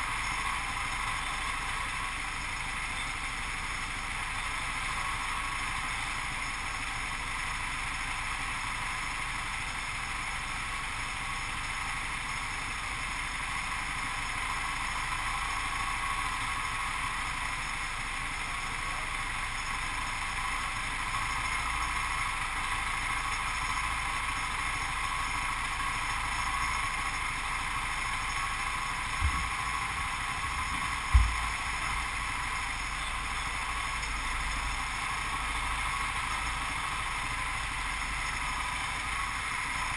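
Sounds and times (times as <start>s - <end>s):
go-kart engine running: 0.0s - 39.9s
low thumps: 30.5s - 31.6s.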